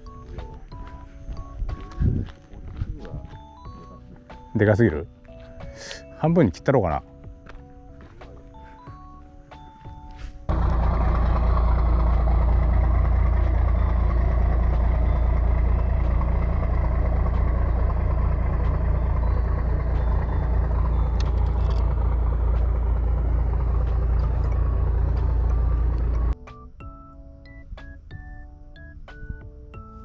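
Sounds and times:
low mechanical drone: 0:10.4 - 0:26.4.

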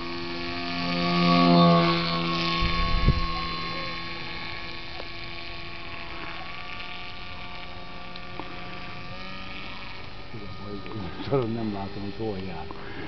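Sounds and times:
model aircraft motor humming: 0:00.0 - 0:13.0.

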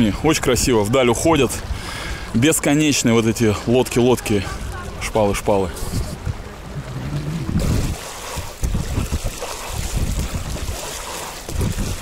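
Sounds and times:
water lapping: 0:00.0 - 0:12.0
wind buffeting microphone: 0:04.4 - 0:12.0
paddle strokes splashing: 0:05.7 - 0:12.0.

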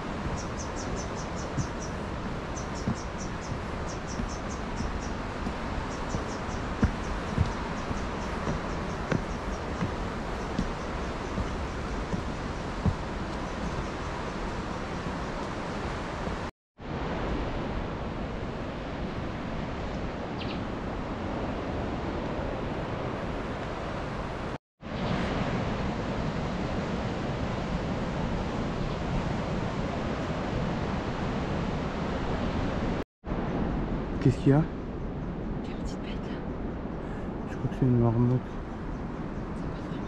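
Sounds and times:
ocean surf breaking on rocks: 0:00.0 - 0:19.8
wind: 0:00.0 - 0:40.0.

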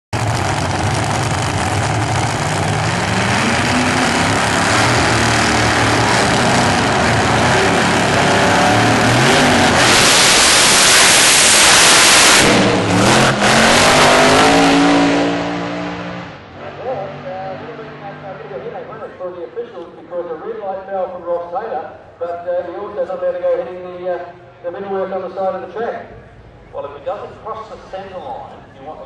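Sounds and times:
drag car engine revving: 0:00.1 - 0:19.2.

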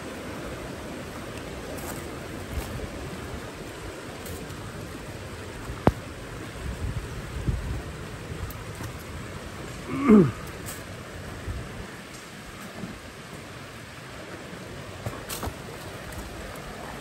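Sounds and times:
flowing water: 0:00.0 - 0:17.0.

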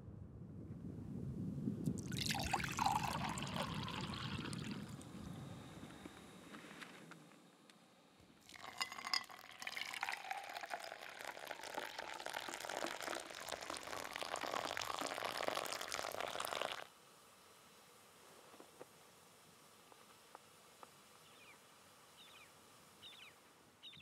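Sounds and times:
water pouring onto coffee grounds: 0:01.9 - 0:05.0, 0:08.4 - 0:16.9.

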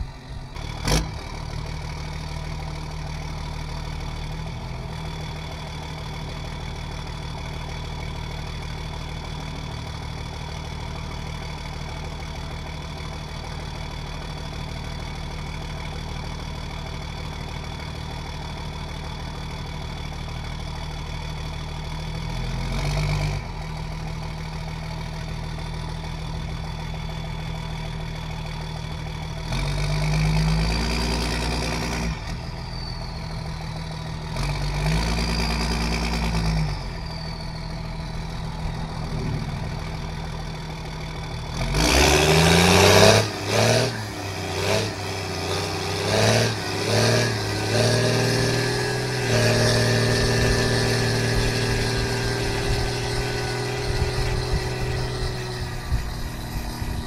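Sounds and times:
diesel truck engine revving: 0:00.0 - 0:13.2, 0:19.0 - 0:57.0.

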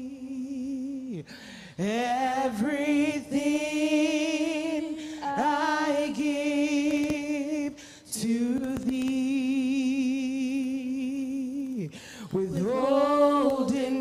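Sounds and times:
singer breathing: 0:01.2 - 0:01.8, 0:04.9 - 0:05.3, 0:07.7 - 0:08.1, 0:11.9 - 0:12.4.

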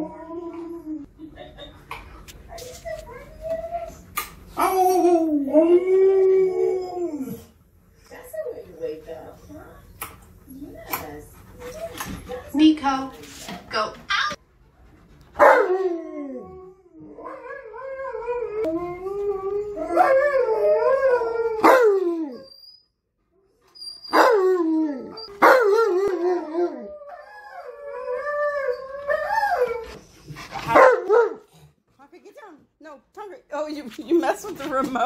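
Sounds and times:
dogs howling: 0:04.5 - 0:07.6, 0:15.4 - 0:22.6, 0:24.0 - 0:30.0.

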